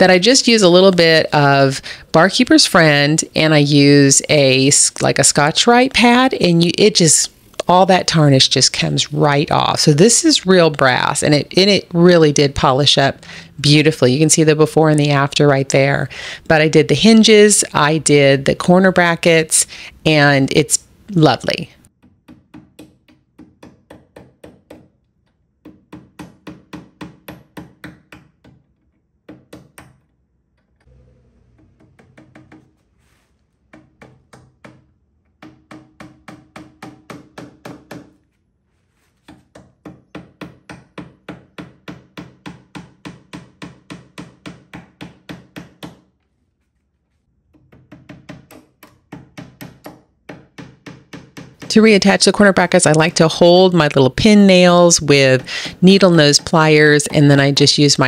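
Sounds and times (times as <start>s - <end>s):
hammer tapping nails into wood: 21.9s - 30.0s, 33.7s - 38.2s, 39.3s - 46.1s, 47.5s - 51.8s.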